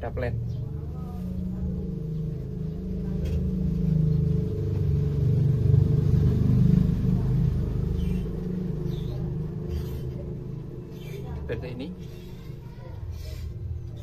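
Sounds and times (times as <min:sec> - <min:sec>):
low engine rumble: 0:00.0 - 0:14.0.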